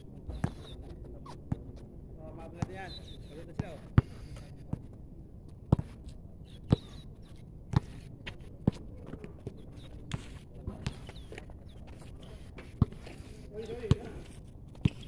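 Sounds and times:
basketball bouncing on concrete: 2.5s - 2.8s, 3.5s - 4.9s, 6.7s - 7.0s, 7.7s - 8.0s, 8.6s - 11.5s, 12.7s - 15.0s.

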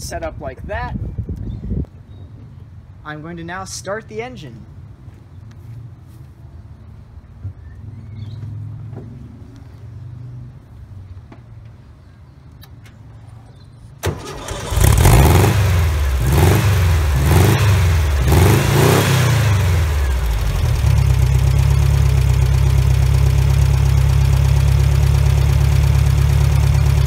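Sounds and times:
dune buggy engine revving and idling: 14.2s - 27.0s.

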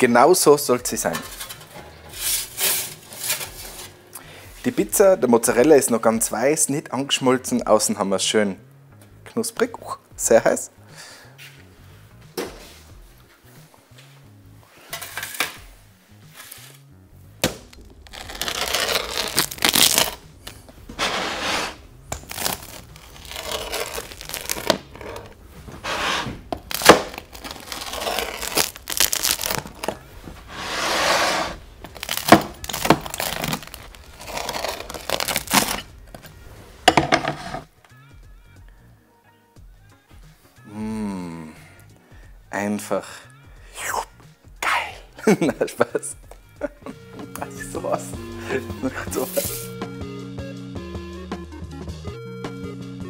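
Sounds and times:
pizza wheel crunching through crust: 1.2s - 3.9s, 17.8s - 36.0s
crust cracking: 17.4s - 30.5s, 31.5s - 36.3s.

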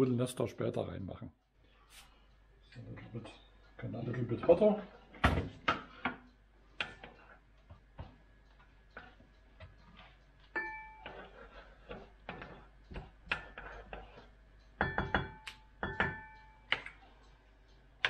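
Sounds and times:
utensil clinking against pot: 9.0s - 17.0s.

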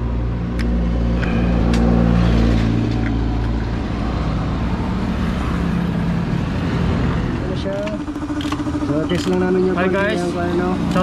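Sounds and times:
motorcycle engine running: 0.9s - 11.0s.

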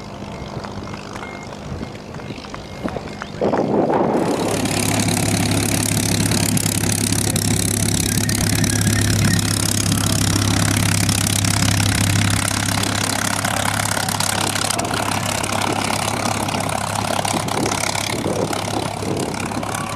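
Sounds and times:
aircraft engine deep drone: 0.0s - 19.9s
propeller noise: 0.0s - 19.9s.

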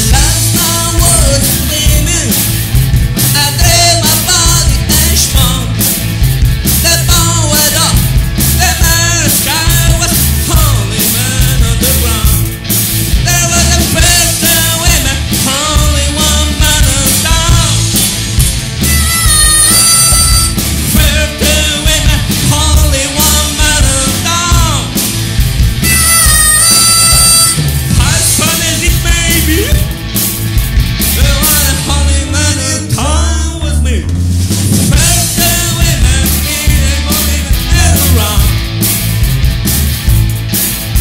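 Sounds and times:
man singing lead vocal: 0.0s - 2.6s, 3.3s - 5.9s, 6.8s - 12.5s, 13.1s - 18.0s, 19.0s - 25.0s, 25.9s - 30.0s, 31.1s - 34.2s, 34.8s - 38.6s
bass guitar: 0.0s - 41.0s
drum kit beat: 0.0s - 41.0s
electric guitars: 0.0s - 41.0s
harmonica: 18.6s - 21.5s, 25.7s - 28.6s.

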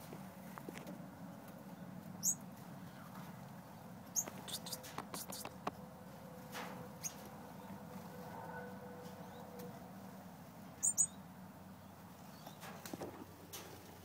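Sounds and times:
finch chirps: 2.2s - 3.1s, 4.1s - 5.7s, 10.8s - 11.2s.

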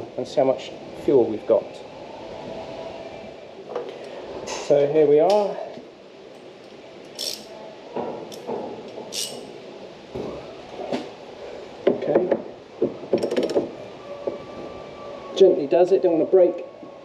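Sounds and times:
socket wrench ratchet clicks: 7.2s - 7.5s, 9.1s - 9.4s.

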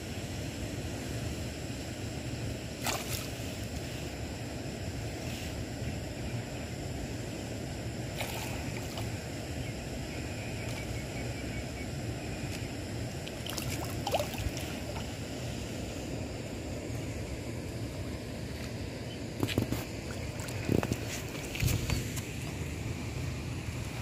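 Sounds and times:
wind rumble on microphone: 19.2s - 24.0s.

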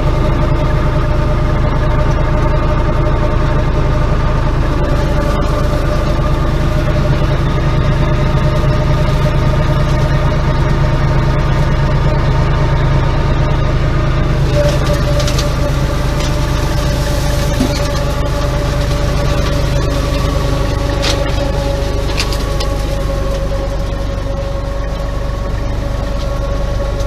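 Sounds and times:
tractor driving a flail mulcher: 0.0s - 27.0s.

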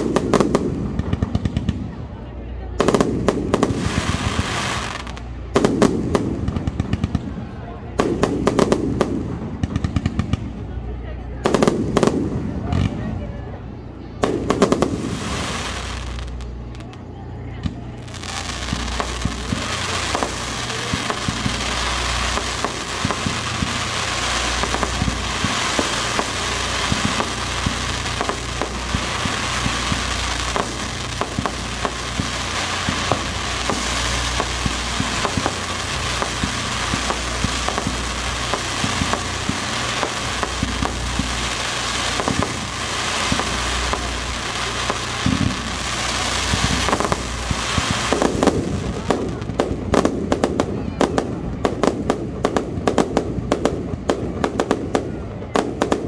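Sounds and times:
loud sharp firework cracks: 0.0s - 2.2s, 2.8s - 10.8s, 11.4s - 13.1s, 14.2s - 17.0s, 17.6s - 56.0s
fireworks crackling: 0.0s - 56.0s.

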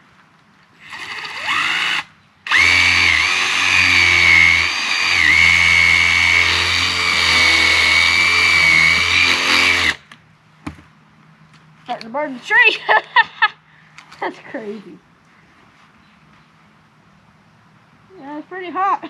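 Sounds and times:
power drill boring into wood: 0.8s - 10.0s.

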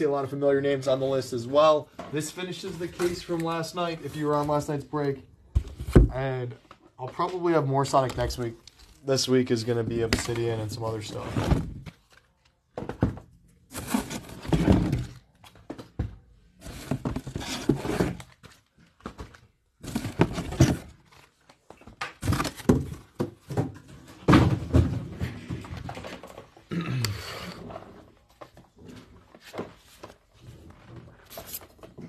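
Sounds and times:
cardboard rubbing and scraping: 13.7s - 14.9s, 16.6s - 18.4s.

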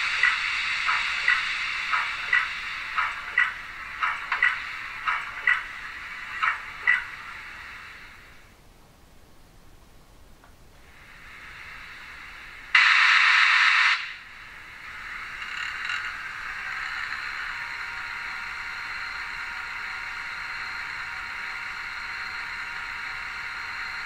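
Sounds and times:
loud hiss from small loudspeaker: 0.0s - 8.6s, 10.8s - 18.7s
generator hiss with thin whine: 0.0s - 24.0s.

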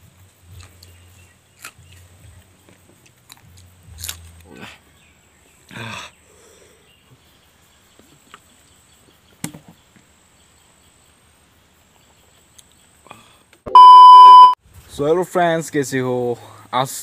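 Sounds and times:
faint high insect tone: 0.0s - 17.0s.

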